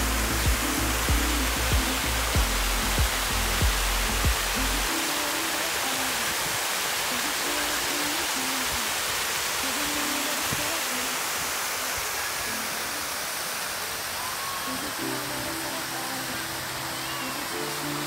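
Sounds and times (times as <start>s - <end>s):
faint music: 0.0s - 18.0s
fountain water splashing: 0.0s - 18.0s.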